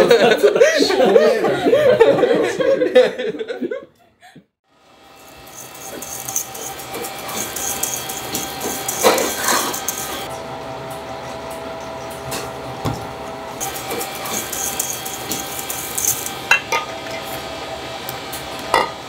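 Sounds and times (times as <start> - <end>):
people laughing: 0.0 - 3.9
utensils scraping metal bowls: 5.2 - 10.3, 13.6 - 17.4.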